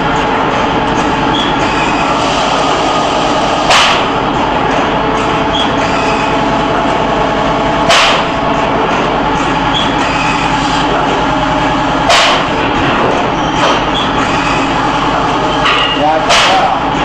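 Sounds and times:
machine hum: 0.0 - 17.0
compressed air blast: 2.2 - 4.2, 7.9 - 8.3.

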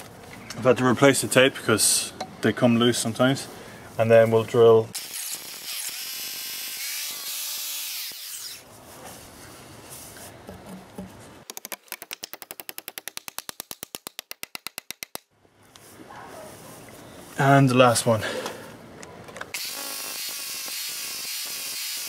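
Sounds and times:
hammer drill boring: 5.0 - 8.5, 19.6 - 22.0.

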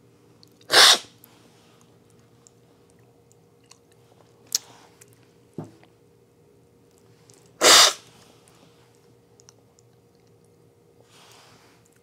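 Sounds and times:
loud slurp of coffee: 0.7 - 1.0, 7.6 - 8.0.

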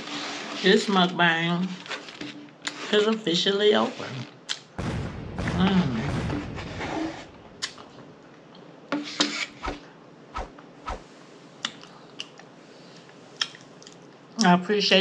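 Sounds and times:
lip smacks and mouth sounds: 11.6 - 14.2.

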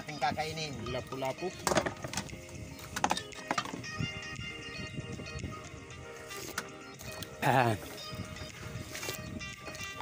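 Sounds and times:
background music sustained notes: 0.0 - 10.0.

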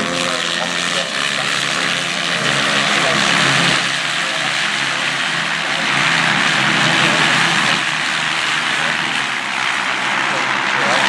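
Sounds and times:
racing motorcycle engines: 0.0 - 11.0.

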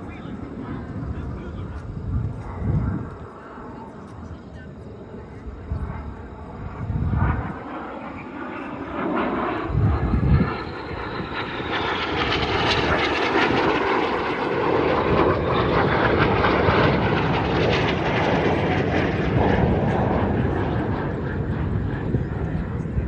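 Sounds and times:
jet engine roar: 0.0 - 23.0.

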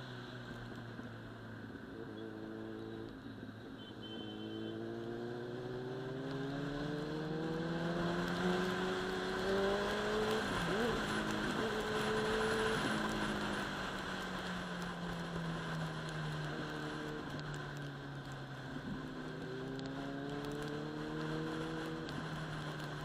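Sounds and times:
motorcycle engine accelerating: 4.7 - 23.0.

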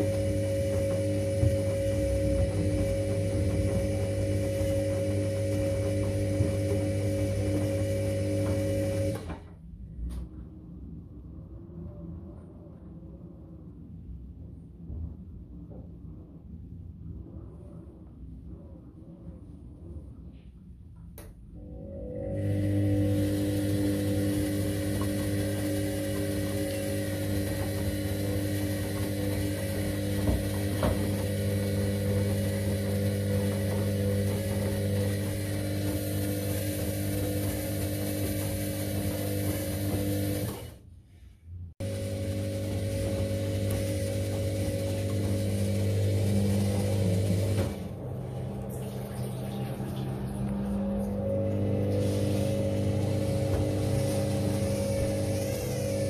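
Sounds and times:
washing machine motor humming: 0.0 - 9.6, 21.5 - 40.9, 41.8 - 56.0.

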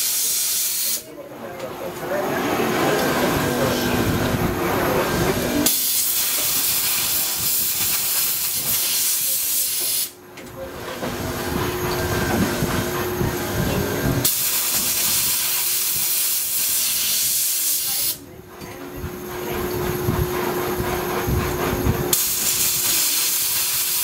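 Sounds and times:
steam jet hissing: 0.0 - 1.1, 2.3 - 10.2, 14.2 - 18.2, 22.1 - 24.0.

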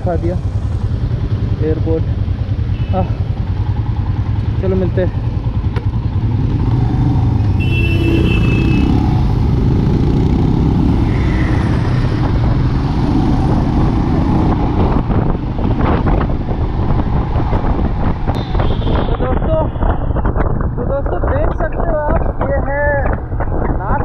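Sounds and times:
motorcycle engine running: 0.0 - 23.3
wind rush on microphone: 5.2 - 24.0.

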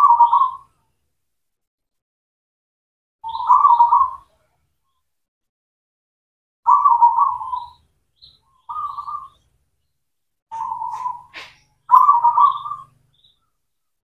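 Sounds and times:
dove cooing: 0.0 - 0.7, 3.3 - 4.3, 6.7 - 7.8, 10.5 - 12.9.

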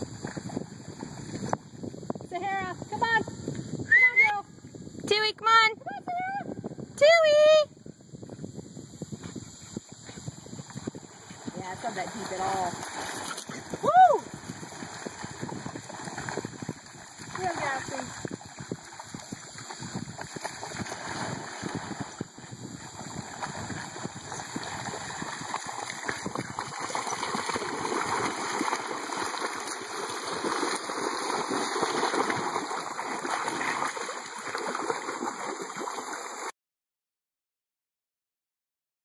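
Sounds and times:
dogs splashing through water: 10.6 - 36.5.

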